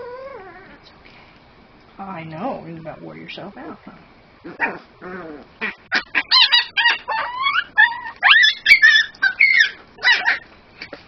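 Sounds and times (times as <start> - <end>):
puppy squealing and yelping: 0.0 - 0.8, 4.4 - 11.0.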